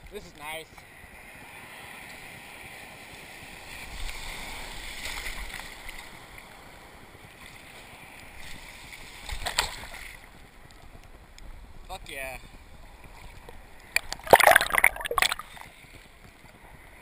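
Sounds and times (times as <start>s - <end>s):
water splash on microphone: 14.0s - 15.7s.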